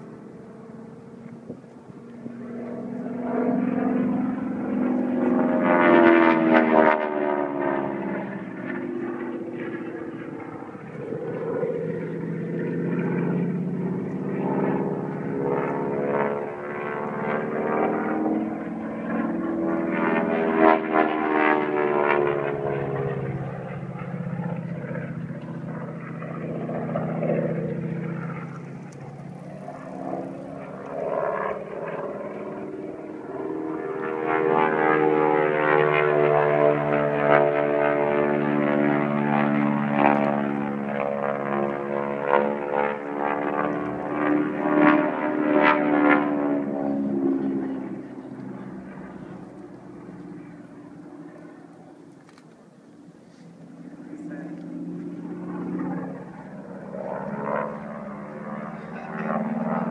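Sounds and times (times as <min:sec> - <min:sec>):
propeller airplane engine: 0:00.0 - 0:59.9.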